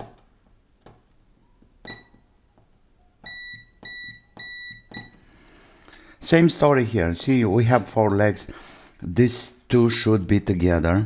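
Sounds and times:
high continuity buzzer beep: 3.2s - 5.2s.

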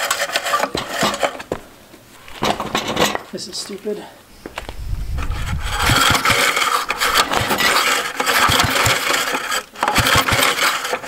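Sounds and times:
engine pull-start cranking: 5.7s - 11.0s.

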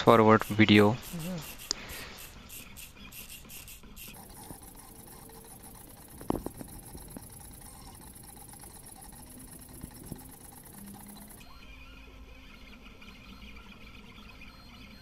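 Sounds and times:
sharp clicks: 4.0s - 11.4s
stepper motor whine: 4.1s - 11.8s.

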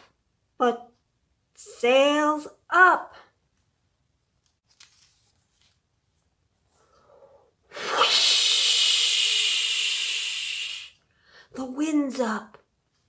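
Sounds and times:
book page turning: 4.4s - 6.3s
woman blowing breathy whoosh: 7.7s - 11.0s.

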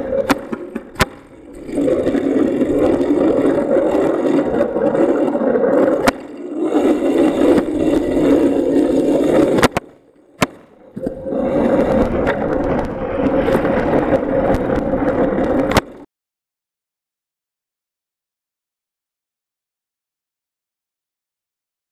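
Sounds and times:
bicycle tyres rumbling on pavement: 0.0s - 16.1s.

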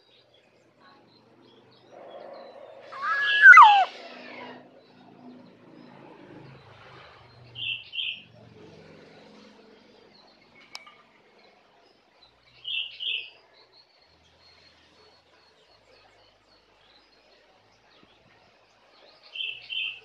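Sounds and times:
oriole whistled call: 2.8s - 4.0s
short high bird notes: 3.0s - 3.9s.

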